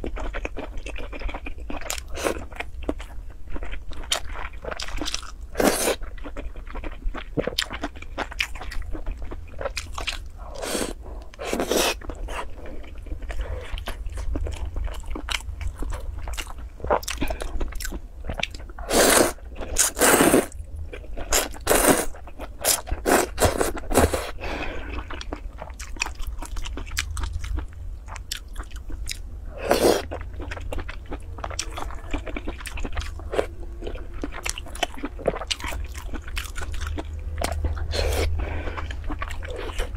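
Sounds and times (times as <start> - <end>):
person chewing and slurping noodles: 0.0 - 39.9
low hum: 28.8 - 39.9.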